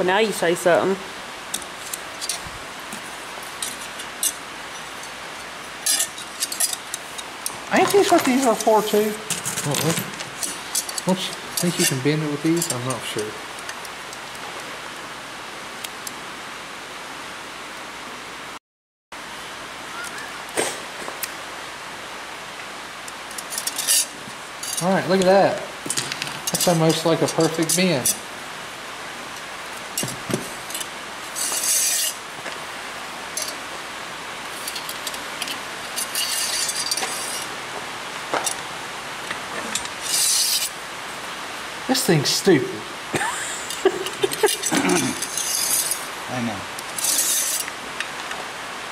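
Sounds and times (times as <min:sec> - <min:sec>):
rain on a tin roof: 0:00.0 - 0:18.6, 0:19.2 - 0:48.9
steady background hiss: 0:00.0 - 0:18.6, 0:19.2 - 0:48.9
metal scraping rubs: 0:01.8 - 0:13.0, 0:23.4 - 0:25.2, 0:30.0 - 0:32.3, 0:34.5 - 0:37.5, 0:39.5 - 0:40.8, 0:44.2 - 0:46.2, 0:46.8 - 0:47.7.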